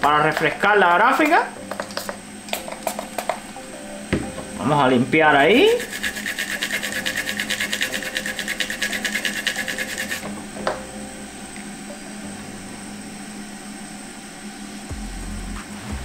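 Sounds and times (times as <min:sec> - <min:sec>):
toothbrush scrubbing circuit board: 0:05.6 - 0:10.2.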